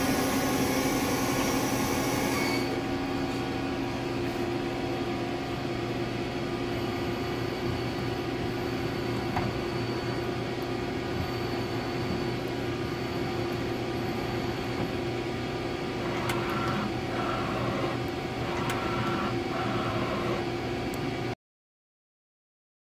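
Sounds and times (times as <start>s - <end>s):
machine whirs with clicks: 0.0s - 2.8s, 16.0s - 21.3s
lathe humming: 0.0s - 3.6s, 10.0s - 20.6s.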